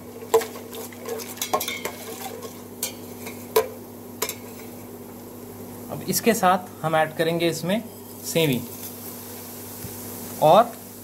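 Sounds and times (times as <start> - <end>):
light frying sizzle: 0.0 - 11.0
steady low hum: 0.0 - 11.0
spoon clinking and scraping pot: 0.4 - 4.8.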